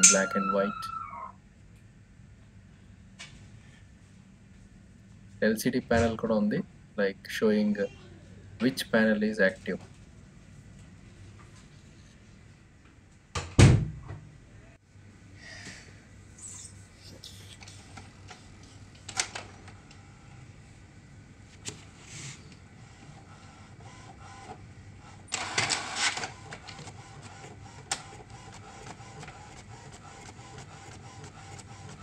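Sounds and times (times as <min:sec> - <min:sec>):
inkjet printer running: 0:00.0 - 0:00.8, 0:22.7 - 0:32.0
sharp printer clicks: 0:23.3 - 0:32.0.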